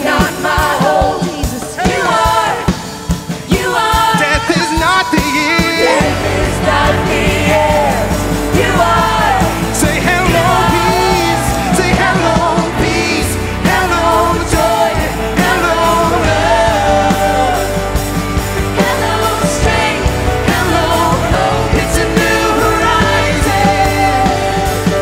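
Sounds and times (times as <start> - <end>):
drums: 0.0 - 25.0
bass: 5.2 - 25.0.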